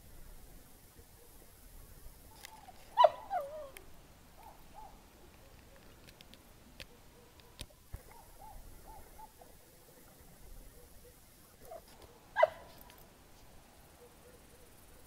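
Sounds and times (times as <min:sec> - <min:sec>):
animal calling: 0:02.3 - 0:05.0, 0:06.9 - 0:09.6, 0:10.7 - 0:13.0.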